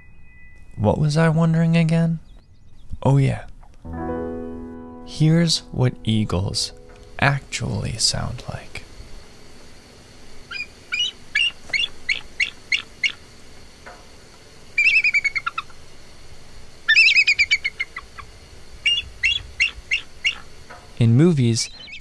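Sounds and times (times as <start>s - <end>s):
eagle calling: 10.5s - 13.3s, 14.8s - 15.8s, 16.9s - 20.6s, 21.4s - 22.0s.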